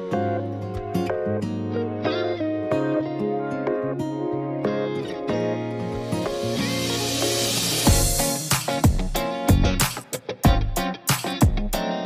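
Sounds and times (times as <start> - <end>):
background music with drum beat: 5.9 - 12.0.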